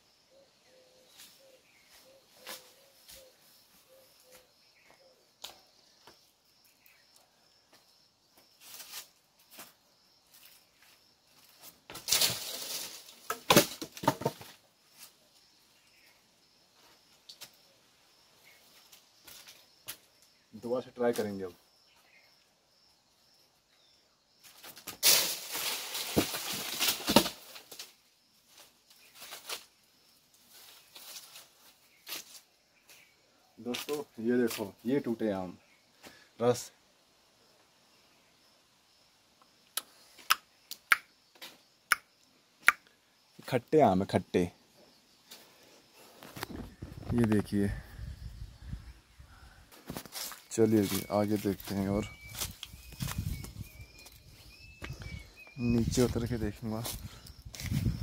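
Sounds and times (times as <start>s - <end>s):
faint insect chirping: 0.0s - 58.0s
leafy branches rustling: 1.0s - 4.0s, 8.5s - 15.4s, 24.4s - 33.1s, 49.6s - 58.0s
rustling in grass: 8.6s - 9.7s, 11.4s - 13.3s, 24.9s - 27.9s, 49.8s - 54.6s, 55.6s - 58.0s
mangoes thudding down: 11.9s - 14.6s, 24.6s - 27.9s
rustling crash through leaves: 12.0s - 14.0s, 24.9s - 27.9s
sharp knocks on tree: 13.3s - 14.6s.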